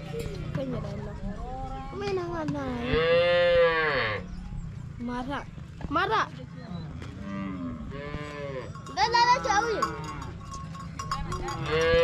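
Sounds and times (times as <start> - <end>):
cattle mooing: 2.9 - 4.2, 7.0 - 10.4.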